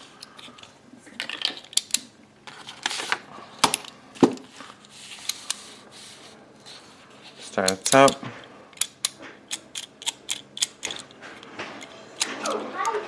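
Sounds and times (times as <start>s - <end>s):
padlocks clicking and clacking: 7.6s - 13.0s.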